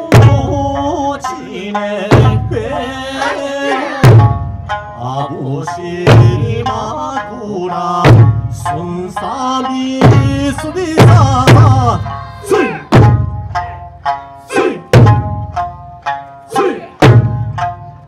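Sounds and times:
barrel drums beating: 0.0s - 1.1s, 1.7s - 5.2s, 5.9s - 7.2s, 8.0s - 18.0s
folk melody singing: 0.0s - 15.4s, 16.5s - 17.3s.

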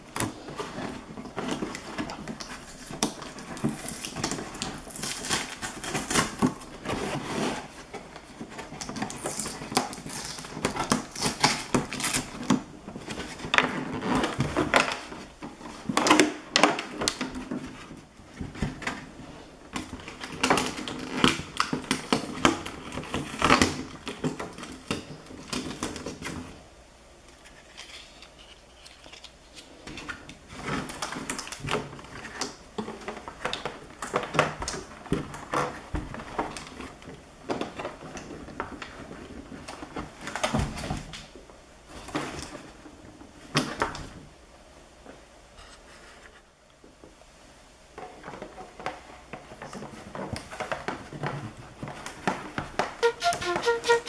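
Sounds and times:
plastic packaging crackling: 1.3s - 7.1s.

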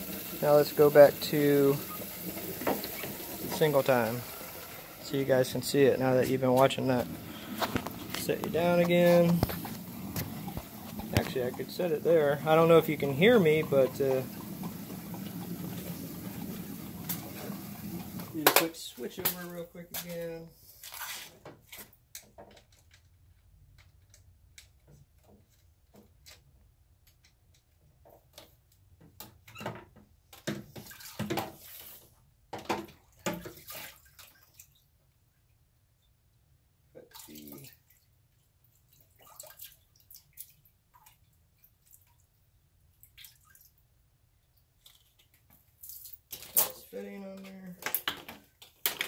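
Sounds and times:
water splashing and dripping: 0.0s - 19.6s, 33.0s - 34.9s, 37.0s - 43.8s.

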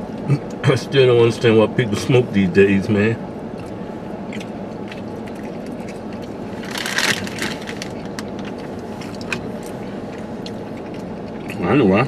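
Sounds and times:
steady low rumble: 0.0s - 12.0s
crushing rustle: 6.6s - 9.4s.

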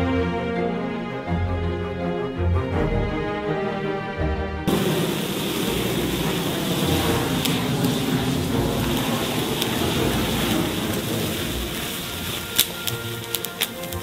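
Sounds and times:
sharp crackles: 4.7s - 14.0s
sparklers hissing roar: 4.7s - 14.0s.

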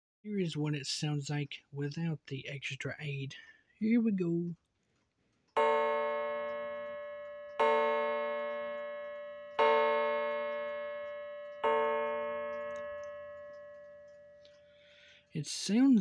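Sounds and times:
wire gong chiming: 5.6s - 14.6s.

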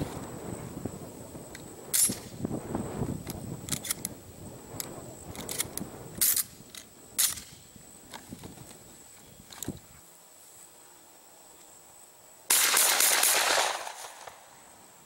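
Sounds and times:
shotgun shells clicking into magazine: 5.3s - 7.5s.

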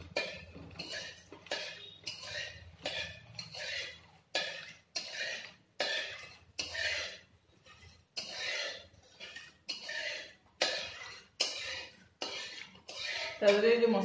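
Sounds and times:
metal spatula scraping a pan: 0.0s - 14.0s
onions frying in oil: 8.2s - 14.0s.

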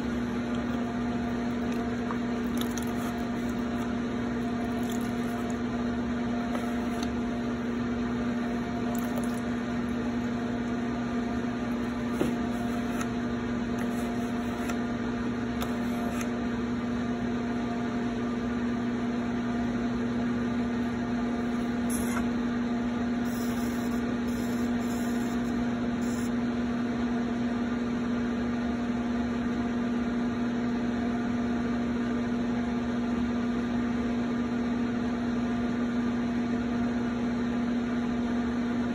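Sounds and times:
potter's wheel humming: 0.0s - 28.7s.

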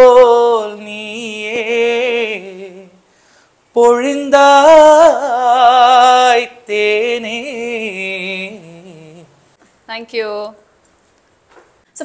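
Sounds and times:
man singing unaccompanied: 0.0s - 3.1s, 3.7s - 9.5s.

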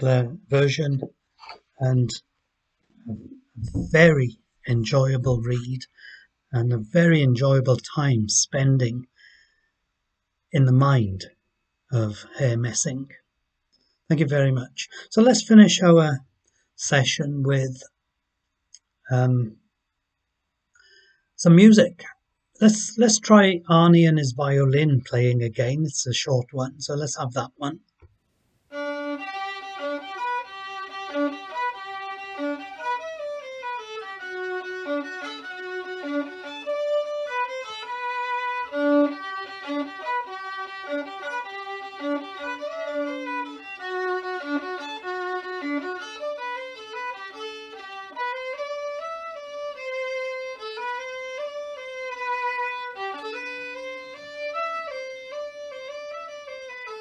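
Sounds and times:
solo violin waltz: 0.0s - 1.1s, 3.1s - 8.0s, 28.7s - 57.0s.

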